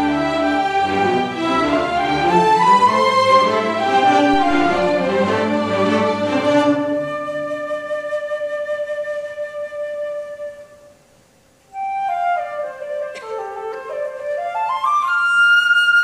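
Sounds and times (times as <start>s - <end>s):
string orchestra playing: 0.0s - 8.0s
flute: 0.0s - 11.1s, 11.7s - 16.0s.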